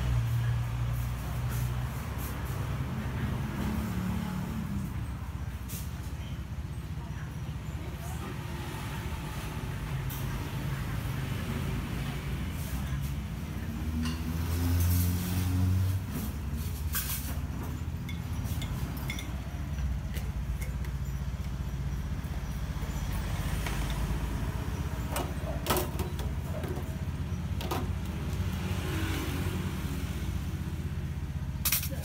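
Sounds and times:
road traffic rumble: 0.0 - 32.0
metal coffee pots clinking: 17.7 - 21.8.

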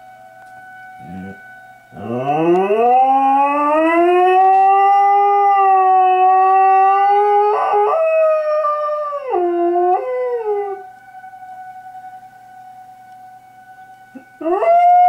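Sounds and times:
faint air raid siren: 0.0 - 15.0
dog howling: 1.0 - 10.9, 14.1 - 15.0.

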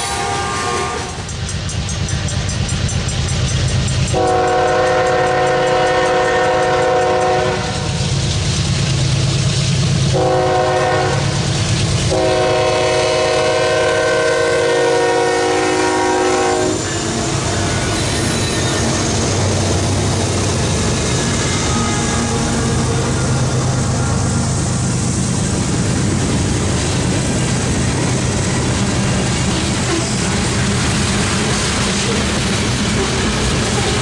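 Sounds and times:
locomotive air horn blasts: 0.0 - 1.2, 4.1 - 8.0, 10.1 - 11.5, 12.1 - 16.9, 21.3 - 24.4.

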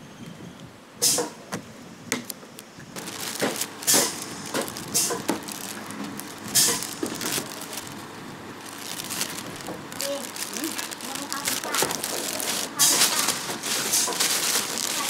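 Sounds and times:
plastic bag crinkling: 2.9 - 15.0
plastic bottles knocking together: 3.0 - 15.0.

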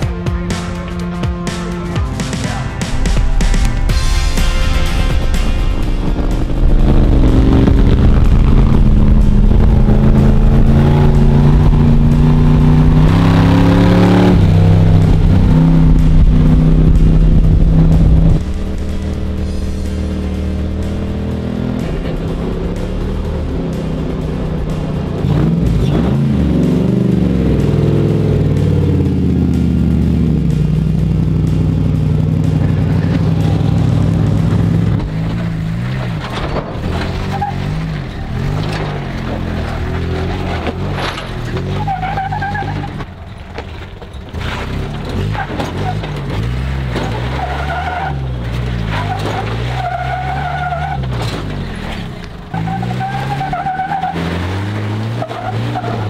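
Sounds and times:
pickup engine revving: 2.4 - 56.0
tyres squealing on rock: 37.0 - 43.1, 47.1 - 56.0.

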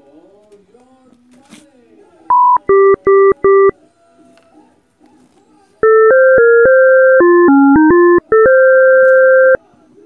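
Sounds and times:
phone alert beeps: 2.3 - 3.7, 5.8 - 9.6.

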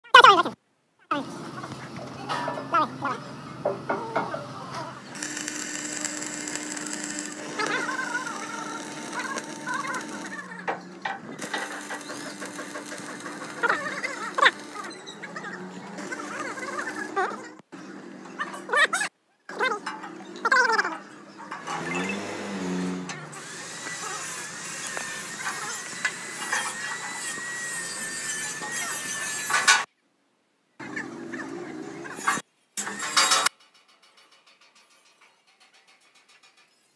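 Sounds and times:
steel bar scraping and creaking: 3.8 - 17.6, 18.2 - 29.9, 32.1 - 36.9
steady high whine: 5.0 - 14.9
welding arc crackling hiss: 5.1 - 10.7, 11.4 - 15.0, 16.0 - 17.2, 22.4 - 29.8.

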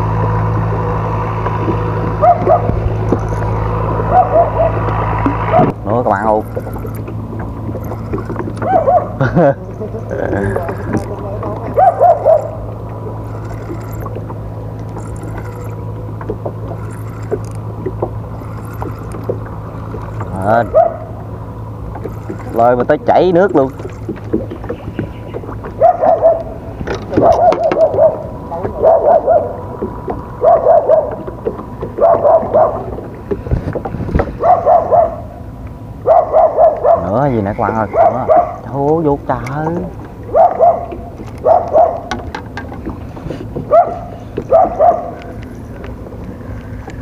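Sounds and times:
low engine hum: 0.0 - 47.0.

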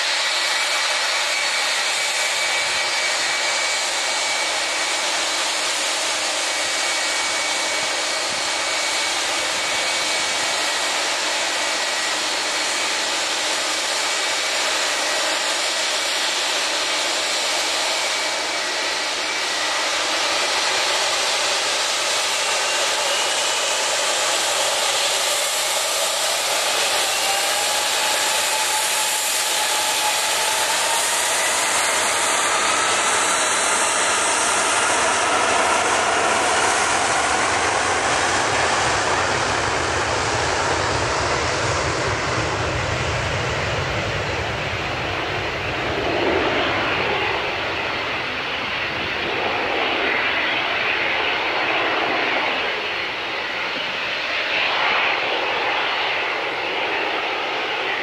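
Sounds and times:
jet engines whining and rushing: 0.0 - 58.0.

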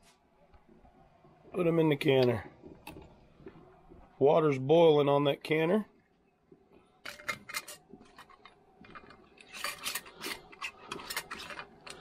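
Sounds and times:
metal lids clinking on glass jars: 7.0 - 12.0.

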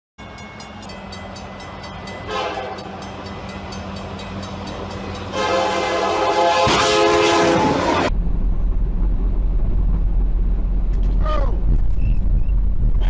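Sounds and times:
locomotive engine hum: 0.2 - 13.0
locomotive air horn blasts: 2.2 - 3.0, 5.3 - 8.1.

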